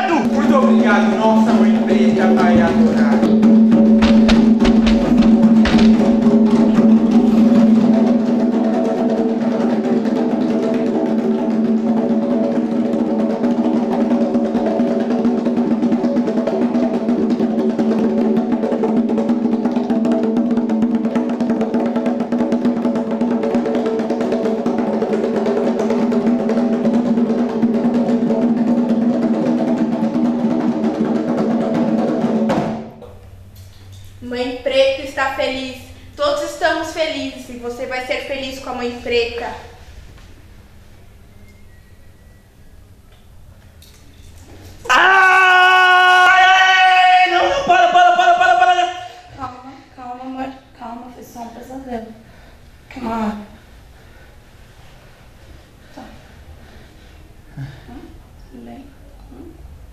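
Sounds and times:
fast hand drumming: 0.0 - 33.0.

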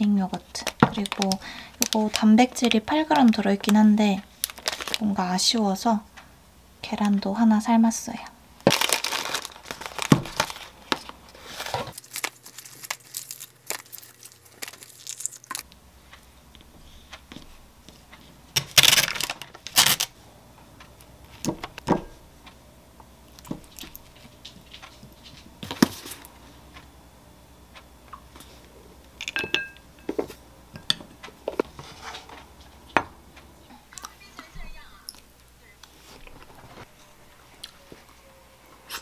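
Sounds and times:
plastic wrapper crinkling: 0.5 - 5.2, 8.6 - 15.7, 18.7 - 20.1.

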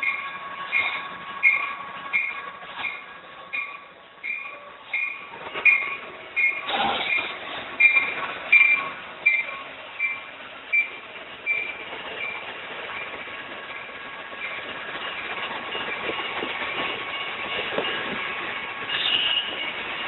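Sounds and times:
passing train: 0.0 - 20.0
railroad crossing bell ringing: 0.0 - 20.0.

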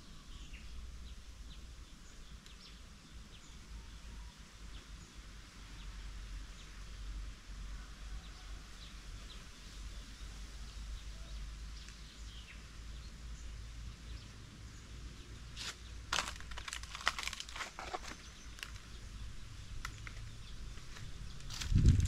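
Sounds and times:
footsteps on stony ground: 15.6 - 19.0, 19.9 - 22.0.

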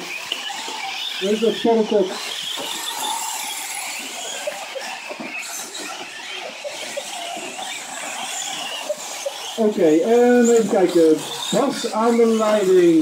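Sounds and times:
toy truck motors whining: 0.0 - 13.0
tyres hissing on gravel: 0.0 - 13.0.

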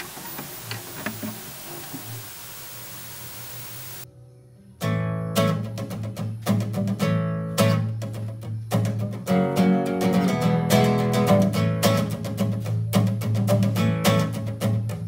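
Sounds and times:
steady hiss: 0.0 - 4.1
classical guitar strummed chords: 4.8 - 15.0.

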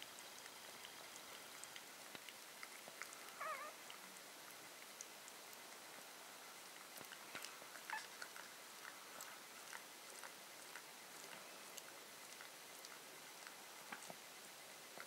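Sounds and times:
small wet clicks and smacks: 0.0 - 15.0
puppy squeak: 3.4 - 3.7.

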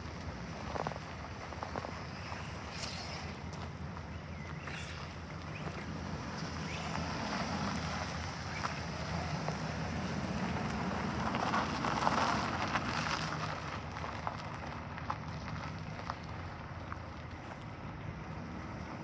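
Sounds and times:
tyres crunching on gravel: 0.0 - 19.0
van engine hum: 0.0 - 19.0.

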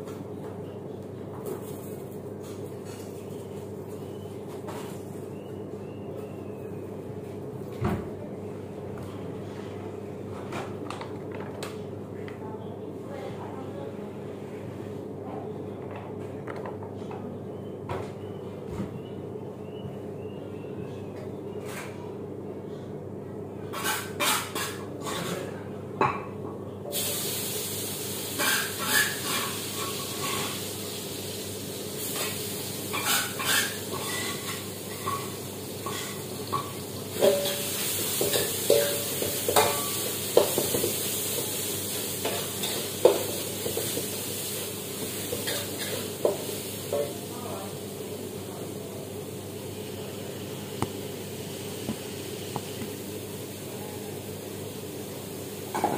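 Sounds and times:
food sizzling in a pan: 26.9 - 53.6
metal spatula scraping a pan: 32.9 - 34.6.

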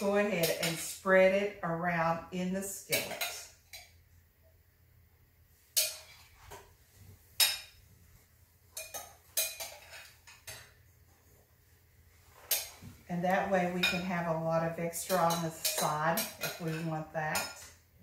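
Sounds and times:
metal spoon clinking on a skillet: 5.8 - 6.2, 7.4 - 7.8, 8.8 - 10.8, 13.8 - 14.1, 14.9 - 17.8.

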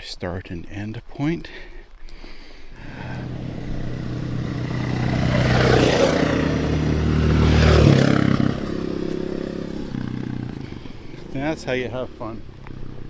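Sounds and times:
vehicle driving past: 2.8 - 13.0.

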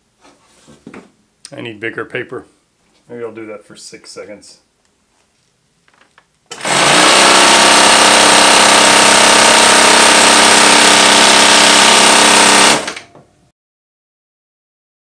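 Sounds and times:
sewing machine whirring: 6.5 - 13.2.

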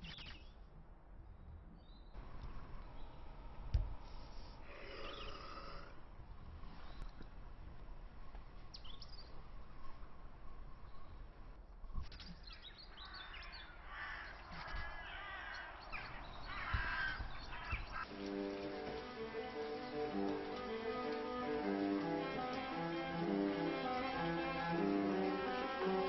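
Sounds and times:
birds calling: 4.7 - 5.9, 8.7 - 26.0.

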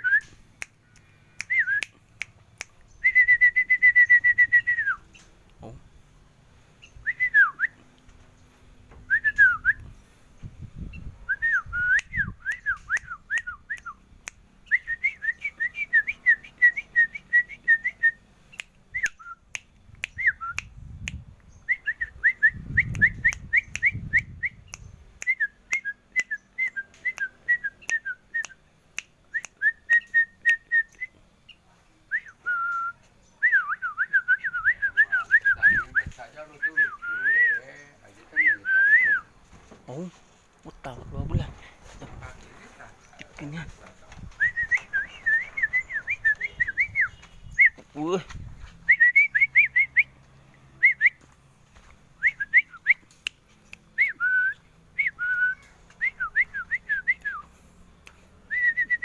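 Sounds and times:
songbird singing: 0.0 - 59.0
dull low thumps: 43.6 - 49.0.

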